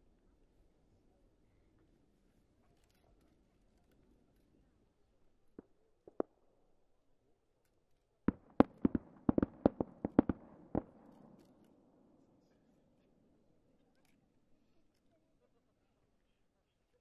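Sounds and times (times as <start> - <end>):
faint firework pops: 5.5 - 6.5, 8.3 - 11.9
sharp firework bangs: 8.3 - 11.6.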